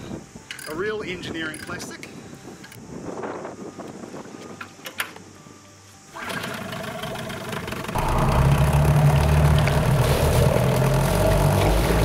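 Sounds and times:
outboard motor running: 6.2s - 12.0s
water churning: 6.2s - 12.0s.

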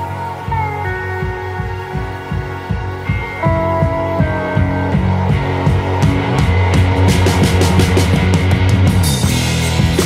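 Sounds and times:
background music with steady beat: 0.0s - 10.0s.

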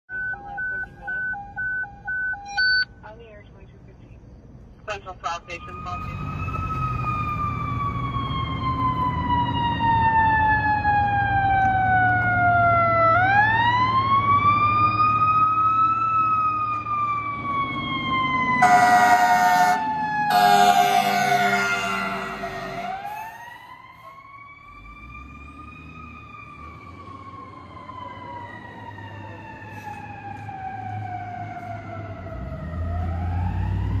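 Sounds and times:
fire engine siren wailing: 5.5s - 34.0s
low vehicle rumble: 5.6s - 34.0s
air horn blast: 18.6s - 23.5s.

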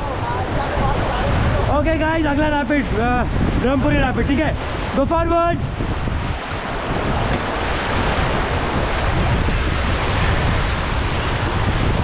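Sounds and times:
whitewater rushing: 0.0s - 12.0s
wind buffeting microphone: 0.0s - 12.0s.

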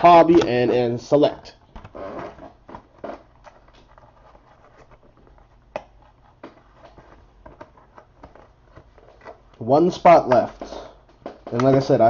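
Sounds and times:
soft rustling: 2.0s - 9.6s.

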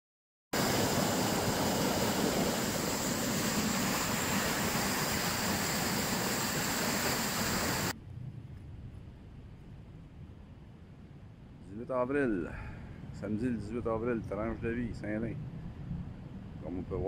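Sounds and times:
faint outdoor background: 0.6s - 17.0s.

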